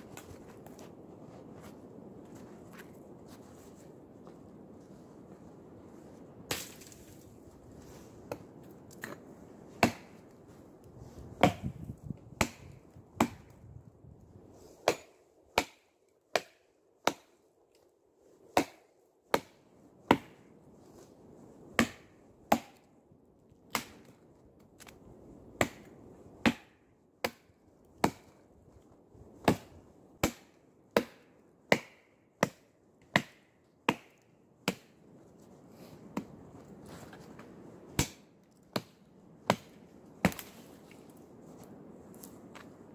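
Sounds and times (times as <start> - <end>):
axe chopping wood: 6.5 - 7.1, 9.8 - 10.2, 11.4 - 13.5, 14.8 - 17.4, 18.5 - 20.4, 21.8 - 22.8, 23.7 - 24.1, 25.6 - 28.3, 29.4 - 34.9, 38.0 - 40.6.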